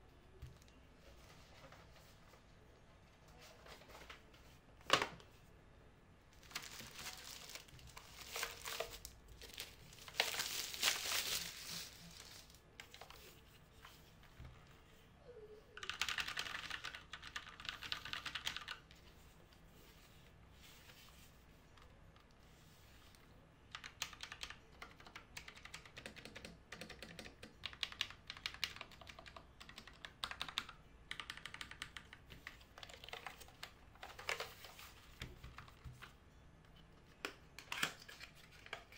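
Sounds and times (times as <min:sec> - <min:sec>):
plastic bag crinkling: 0:06.4 - 0:12.6
typing clicks on keyboard: 0:15.8 - 0:18.8, 0:23.7 - 0:34.5.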